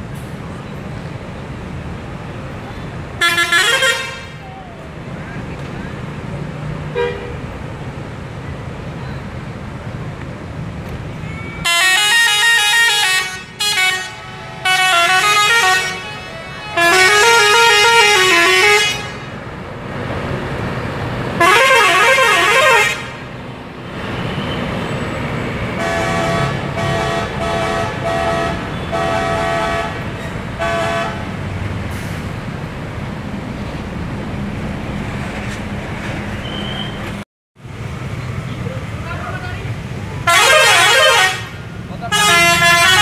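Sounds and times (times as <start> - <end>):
bus diesel engine: 0.0 - 43.0
multi-tone bus horn playing tune: 3.2 - 4.4, 6.9 - 7.4, 11.6 - 19.4, 21.4 - 23.3, 25.8 - 31.3, 40.2 - 43.0.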